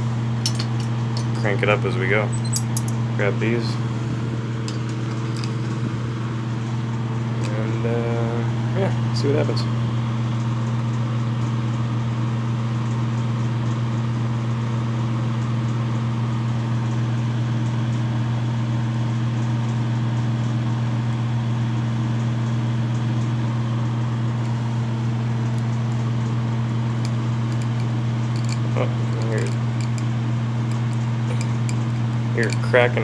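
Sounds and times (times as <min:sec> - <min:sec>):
loud constant hum: 0:00.0 - 0:10.6, 0:22.9 - 0:33.0
wood crackling and popping: 0:24.4 - 0:32.7.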